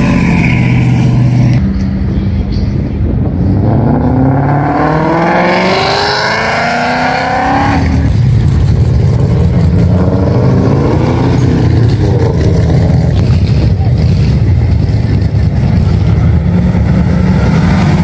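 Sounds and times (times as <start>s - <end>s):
car engines pulling away: 0.0s - 18.0s
car accelerating hard: 3.6s - 14.3s.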